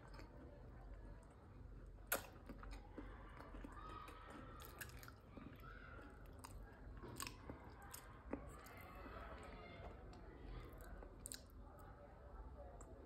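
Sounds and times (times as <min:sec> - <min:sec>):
chewing and nibbling food: 0:00.0 - 0:12.0.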